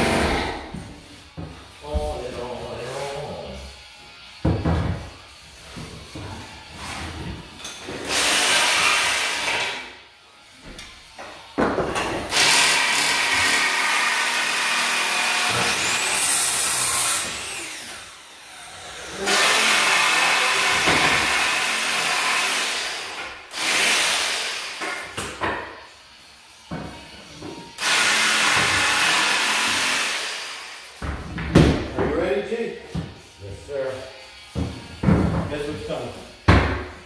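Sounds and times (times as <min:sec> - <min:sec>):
cordless power tool running: 0:03.6 - 0:11.6, 0:12.2 - 0:25.2, 0:25.8 - 0:31.0.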